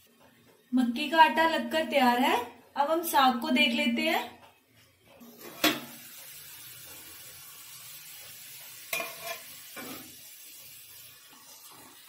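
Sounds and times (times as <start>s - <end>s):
greens sizzling in pot: 5.2s - 12.0s
spoon scraping pot: 8.9s - 10.2s.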